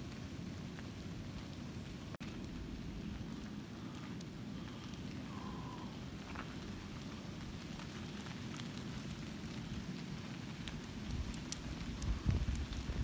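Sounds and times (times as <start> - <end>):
sharp ticks of raindrops: 0.0 - 13.0
steady rain falling: 0.0 - 13.0.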